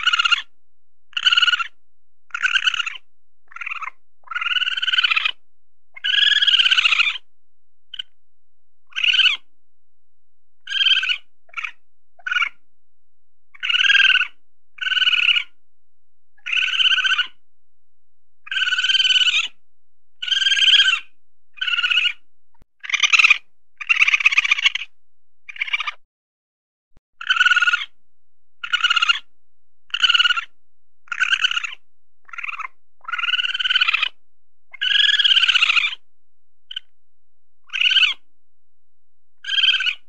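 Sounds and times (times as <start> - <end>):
weasel calling: 0.0 - 5.4, 6.0 - 7.3, 7.9 - 8.2, 8.8 - 9.5, 10.6 - 12.6, 13.5 - 15.6, 16.4 - 17.4, 18.4 - 19.6, 20.2 - 22.2, 22.8 - 26.0, 27.2 - 28.0, 28.6 - 29.3, 29.9 - 36.0, 36.7 - 36.9, 37.6 - 38.3, 39.4 - 40.0.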